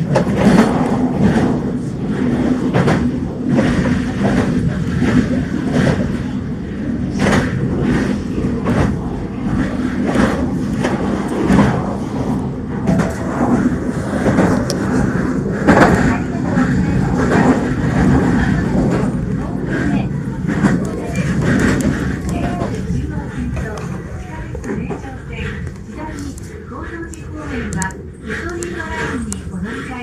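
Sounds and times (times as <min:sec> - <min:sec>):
train running gear rumble: 0:00.0 - 0:30.0.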